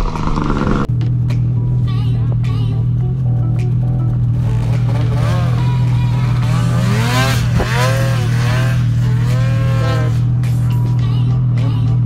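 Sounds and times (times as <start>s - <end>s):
snowmobile engine revving: 4.3s - 10.6s.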